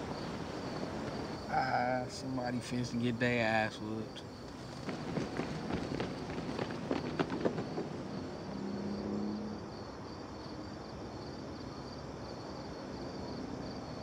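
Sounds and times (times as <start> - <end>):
crickets chirping: 0.0 - 14.0.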